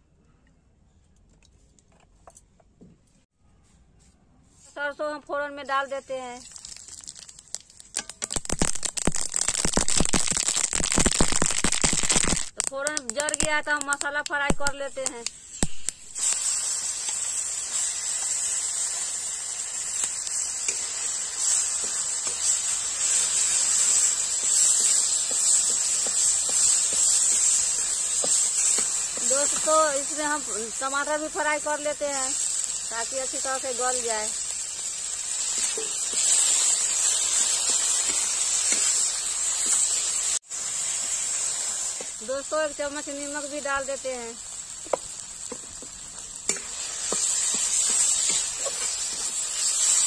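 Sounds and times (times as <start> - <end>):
spices sizzling in hot oil: 4.5 - 50.0
spatula scraping pan: 46.5 - 50.0.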